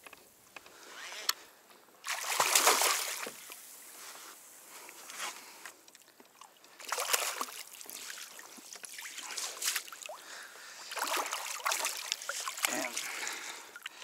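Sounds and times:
water splashing and sloshing: 2.0s - 3.8s, 5.9s - 14.0s.

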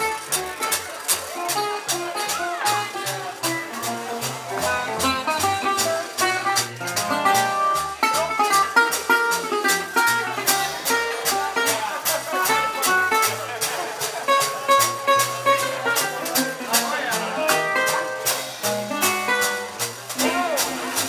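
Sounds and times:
steady drum beat: 0.0s - 21.0s
guitar chords: 1.4s - 13.5s, 14.3s - 21.0s
stepping bass line: 1.5s - 21.0s.

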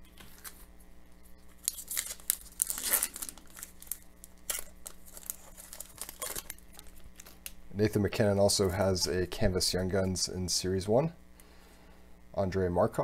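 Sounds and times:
foil wrapper crinkling and tearing: 0.2s - 0.7s, 1.5s - 7.6s.

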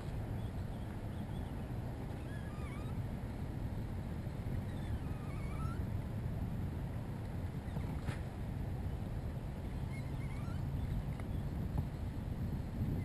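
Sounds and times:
wind rumble on microphone: 0.0s - 13.0s
faint bird chirps: 2.2s - 3.0s, 4.7s - 5.8s, 9.8s - 11.5s.

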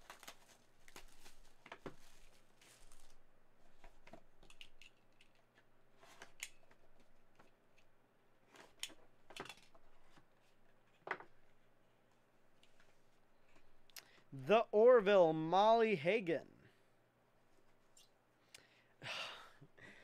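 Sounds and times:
plastic wrap crinkling: 0.0s - 4.0s.

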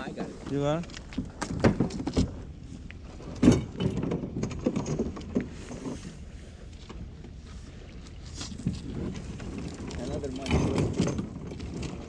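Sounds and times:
fishing gear knocking and rattling: 0.4s - 6.1s, 8.1s - 12.0s.

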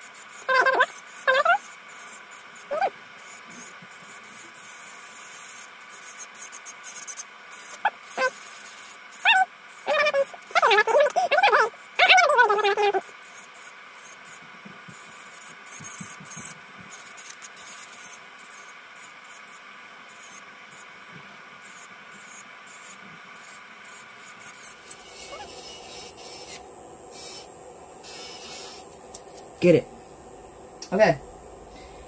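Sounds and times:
electric nail drill whine: 0.0s - 21.0s, 21.6s - 32.0s.

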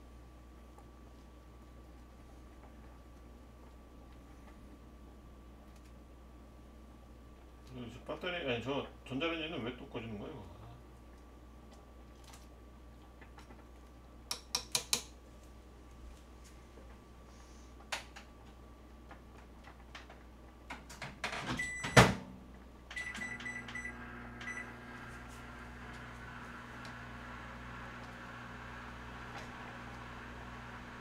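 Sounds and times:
microwave oven humming: 0.0s - 14.3s, 15.0s - 31.0s
keypad beeps: 21.6s - 22.0s, 22.9s - 24.7s.

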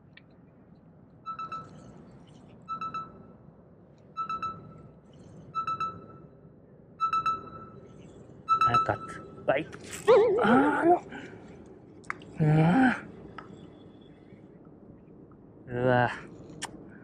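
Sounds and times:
pitched electronic beep: 1.3s - 2.0s, 2.6s - 3.3s, 4.2s - 6.4s, 7.0s - 9.5s.

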